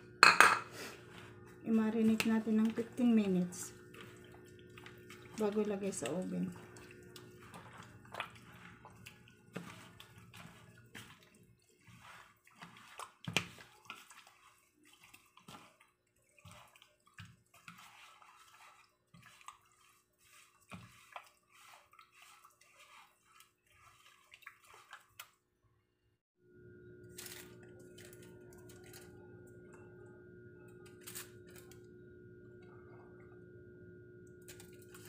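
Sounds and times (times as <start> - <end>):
wet squelching and sloshing: 0.9 - 25.5.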